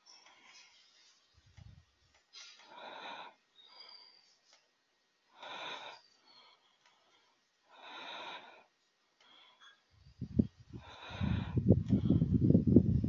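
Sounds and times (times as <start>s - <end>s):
person breathing: 2.3s - 4.6s, 5.3s - 12.8s.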